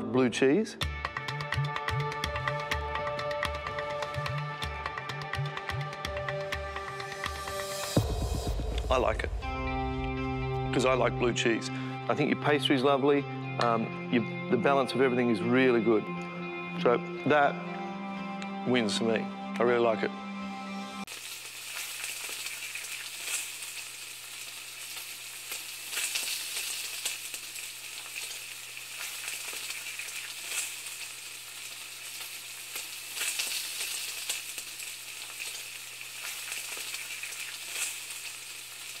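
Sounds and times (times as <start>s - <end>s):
food sizzling in a pan: 3.9s - 8.7s, 21.0s - 39.0s.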